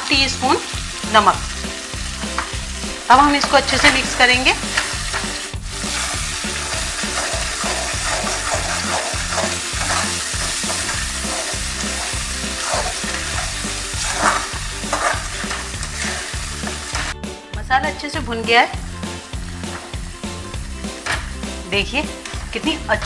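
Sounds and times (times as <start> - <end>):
paste sizzling in hot oil: 0.0 - 17.2, 18.8 - 23.0
steel spoon scraping pan: 3.5 - 17.2.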